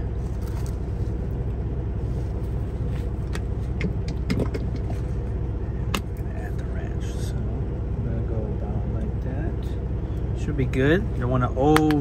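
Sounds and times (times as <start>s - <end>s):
diesel engine idling: 0.0s - 12.0s.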